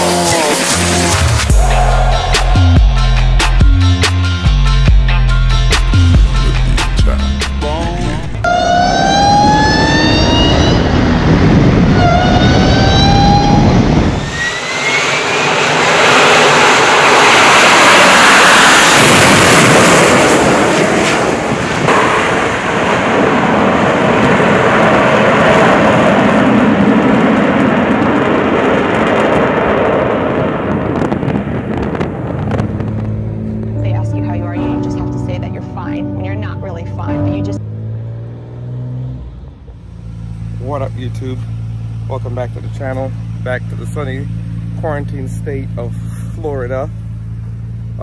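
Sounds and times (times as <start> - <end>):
jet engine taking off: 0.0 - 4.4, 7.6 - 35.9.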